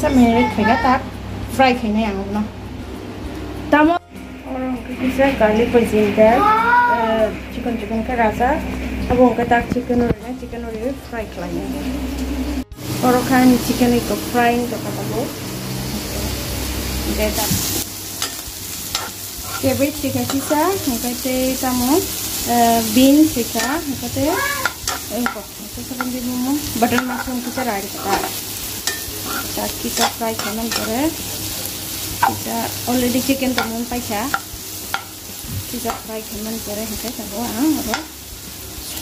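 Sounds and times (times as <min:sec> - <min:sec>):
hot oil sizzling: 0:04.6 - 0:39.0
steel spatula scraping a pan: 0:18.2 - 0:20.7, 0:23.5 - 0:25.5, 0:26.8 - 0:31.1.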